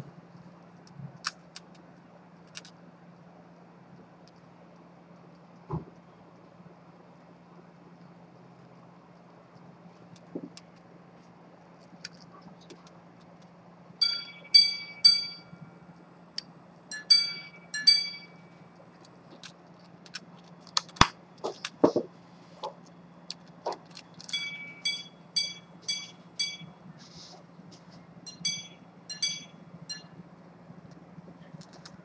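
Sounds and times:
pocket watch gongs striking: 14.0 - 15.8, 16.9 - 18.5, 24.3 - 26.8, 28.2 - 30.2.

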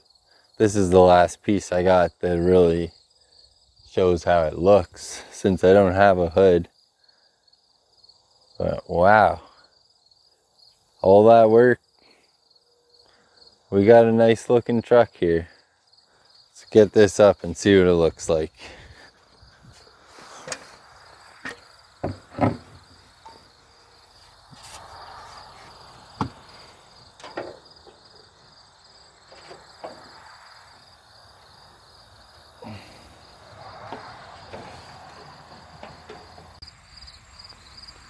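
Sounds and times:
insects chirring: 0.0 - 38.0
sheet metal clunks and knocks: 21.4 - 23.4, 27.2 - 28.1, 33.8 - 36.6.

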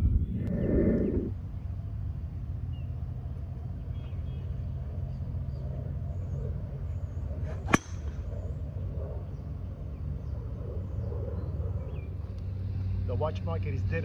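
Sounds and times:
low rumble: 0.0 - 1.9
golf club striking ball: 7.6 - 8.2.

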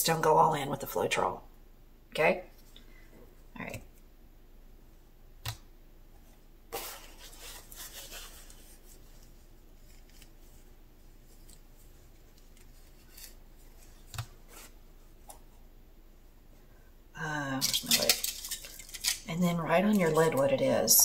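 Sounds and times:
paper towel rubbing and crinkling: 6.7 - 14.8.

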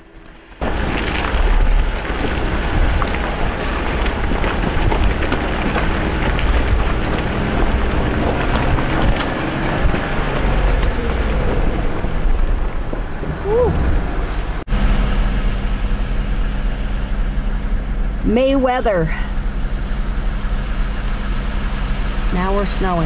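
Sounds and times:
vehicle engine rumble and hiss: 0.0 - 23.0
knocks and rattles: 0.6 - 13.4.

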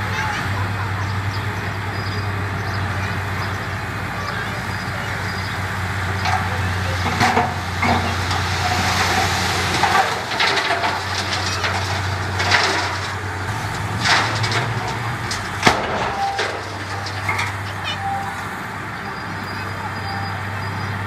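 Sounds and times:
bulldozer diesel engine running: 0.0 - 21.0
sharp cracks and clanks: 6.2 - 18.0.

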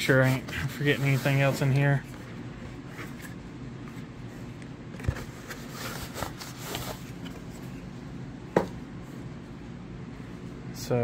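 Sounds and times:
cardboard box rustling and scraping: 5.1 - 7.6.

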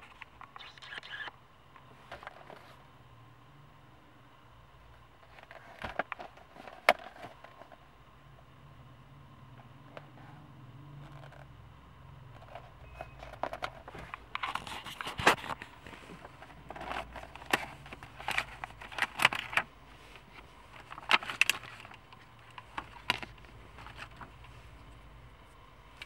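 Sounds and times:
faint low hum: 0.0 - 26.0
plastic packaging crinkling: 20.7 - 24.4.

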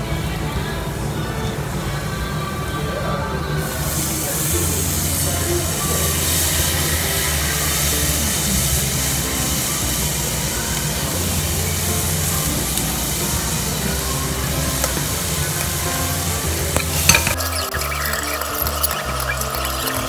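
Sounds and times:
rice sizzling in hot oil: 3.8 - 20.0
spatula clinking against pot: 16.8 - 20.0.

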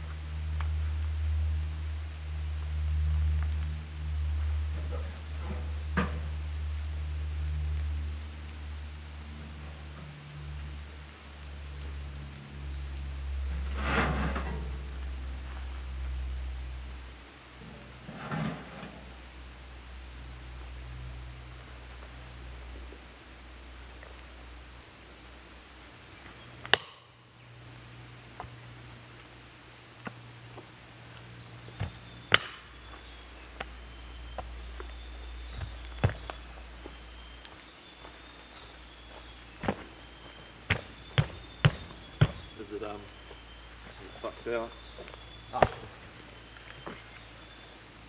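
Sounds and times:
steady low hum: 0.0 - 48.0
iron sheet scraping rattle: 13.5 - 14.7, 18.0 - 19.0
firewood chopping: 26.6 - 27.2, 31.7 - 33.7, 40.7 - 42.7, 45.5 - 46.0.

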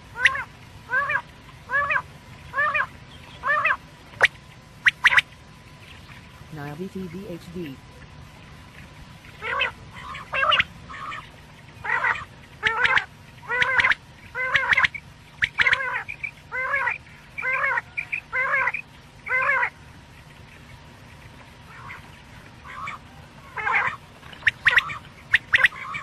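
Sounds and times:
quail calls: 0.2 - 5.3, 9.4 - 19.8, 21.6 - 26.0.

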